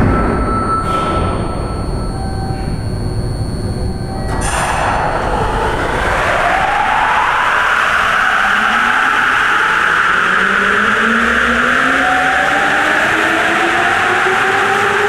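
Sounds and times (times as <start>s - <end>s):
whining train motors: 0.0s - 15.0s
train rushing noise: 4.2s - 15.0s.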